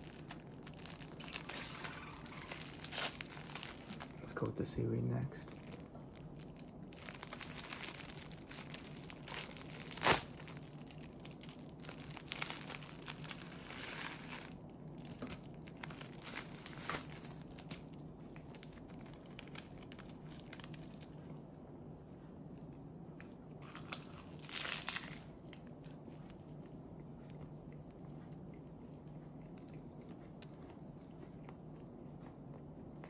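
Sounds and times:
plastic wrapper crinkling: 0.0s - 21.2s, 23.6s - 26.3s.

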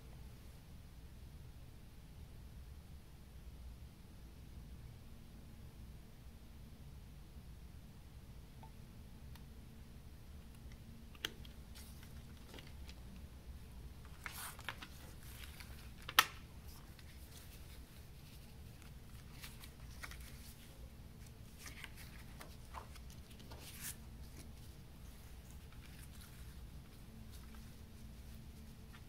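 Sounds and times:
paper booklet rustling: 11.2s - 13.2s, 14.0s - 29.0s.

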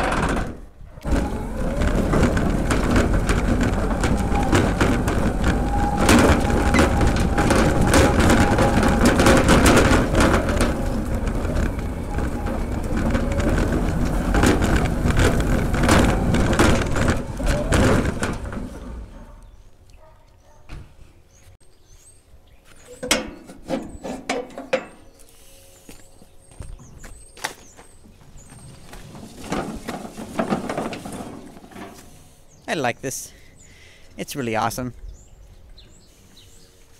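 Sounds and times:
sharp knocks and clicks: 0.0s - 19.0s
chassis rattling: 0.0s - 19.6s
tyre rumble: 0.0s - 19.6s, 27.8s - 32.1s.

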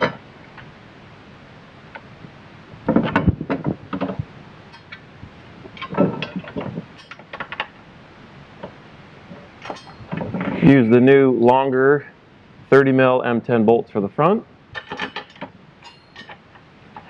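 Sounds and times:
metal brace knocking and scraping: 2.9s - 5.0s, 5.7s - 7.8s, 8.6s - 10.8s, 14.7s - 17.0s.

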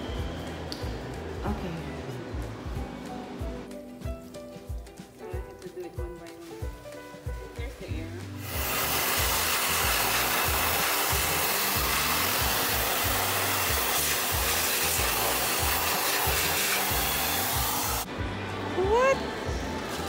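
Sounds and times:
electric hand dryer blowing: 8.3s - 18.1s.

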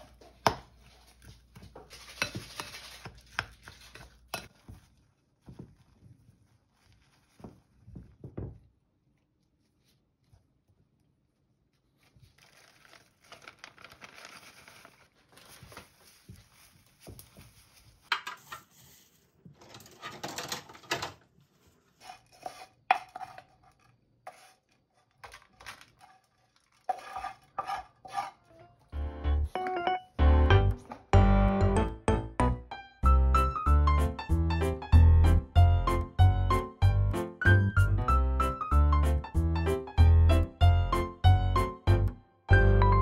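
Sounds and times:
rustling of hands pressing rice: 0.4s - 8.8s
music: 28.6s - 43.0s.

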